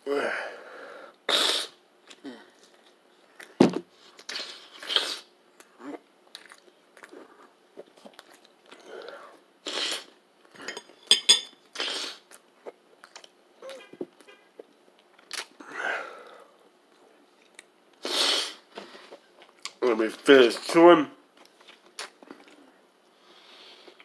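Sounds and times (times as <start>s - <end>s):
person chewing food: 5.6s - 10.7s, 11.6s - 13.4s.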